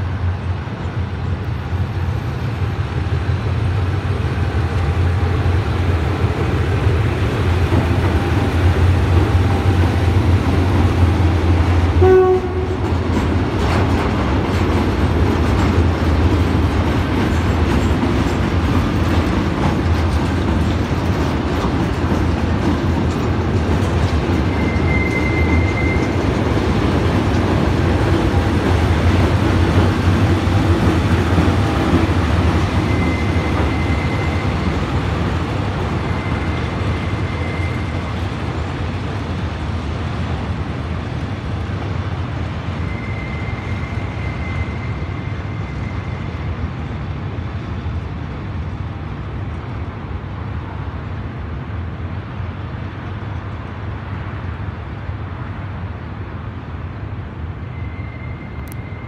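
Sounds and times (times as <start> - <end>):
freight train rumbling past: 0.0 - 59.0
wheels clattering over rails: 12.6 - 36.3
high wheel squeal: 24.4 - 26.5, 31.6 - 35.0, 35.9 - 38.3, 42.7 - 46.7, 57.6 - 59.0.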